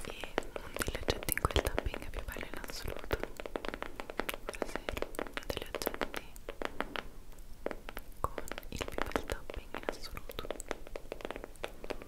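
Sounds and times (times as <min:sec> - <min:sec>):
tongue and mouth clicks: 0:08.2 - 0:10.7.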